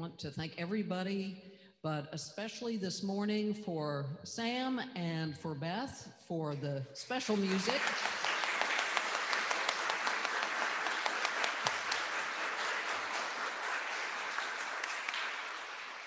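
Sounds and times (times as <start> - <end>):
crowd applauding: 7.3 - 16.0.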